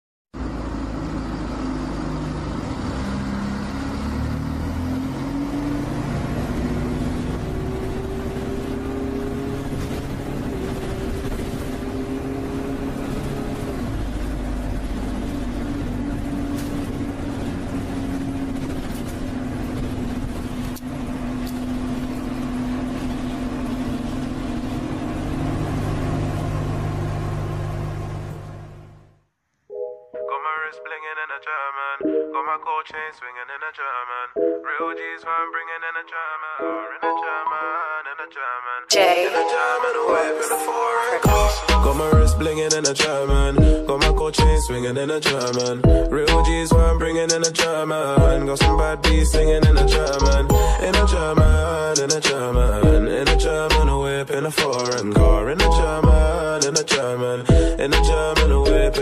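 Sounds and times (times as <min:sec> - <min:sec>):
tyre and road noise: 0:00.4 - 0:29.2, 0:41.2 - 0:59.0
engine drone: 0:00.4 - 0:29.3, 0:41.2 - 0:59.0.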